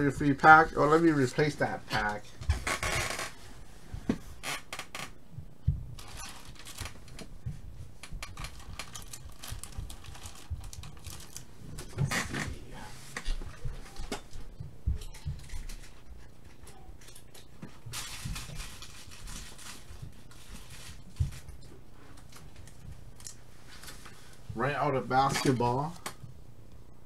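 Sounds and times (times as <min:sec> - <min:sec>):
pack wrappers rustling: 0:06.0 - 0:07.3, 0:08.0 - 0:11.5, 0:17.0 - 0:21.6.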